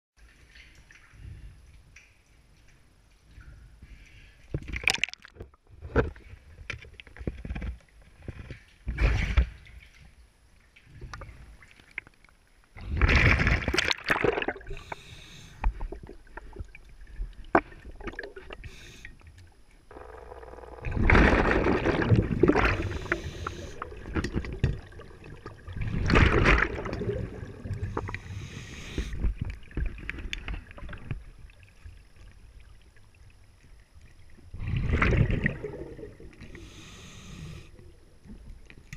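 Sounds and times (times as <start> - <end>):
breathing regulator hiss: 14.7 - 15.8, 18.6 - 19.2, 22.7 - 23.9, 27.8 - 29.2, 36.4 - 37.8
diver exhaling bubbles underwater: 20.8 - 29.2, 34.5 - 38.0.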